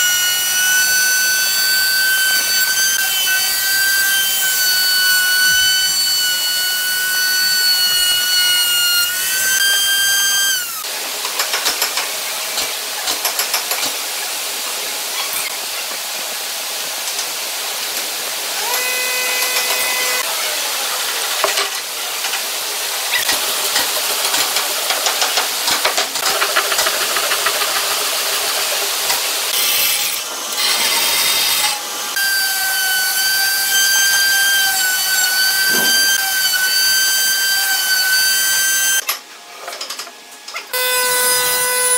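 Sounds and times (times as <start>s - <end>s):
router high whine: 0.0s - 10.8s, 18.6s - 20.8s, 30.3s - 39.0s
wood scraping and rubbing: 35.6s - 36.2s.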